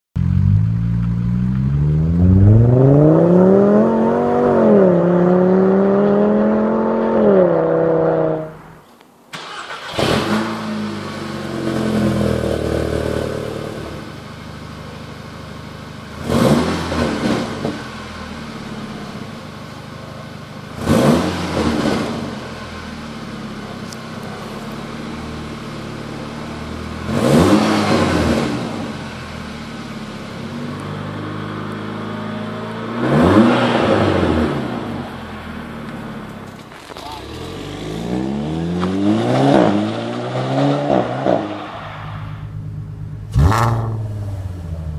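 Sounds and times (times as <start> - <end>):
engine revving: 0.2 - 8.7, 9.4 - 14.2, 16.1 - 19.2, 20.7 - 22.9, 23.5 - 36.2, 36.8 - 44.9
car engine accelerating: 0.2 - 8.8, 9.4 - 44.9
car engine cold start: 9.3 - 13.5.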